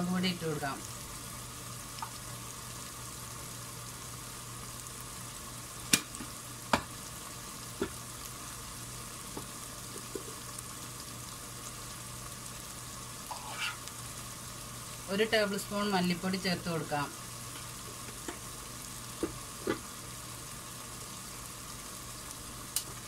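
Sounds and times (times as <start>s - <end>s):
food sizzling in oil: 0.0s - 23.0s.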